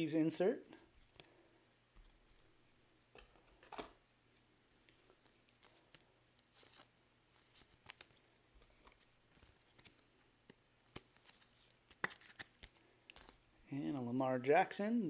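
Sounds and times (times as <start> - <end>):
trading cards clicking and rustling: 4.9 - 13.4.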